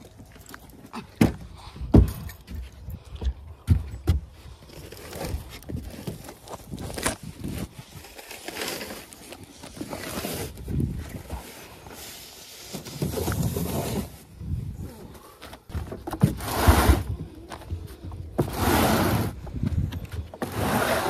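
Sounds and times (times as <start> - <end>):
bags and boxes rustling and scraping: 4.6 - 21.0.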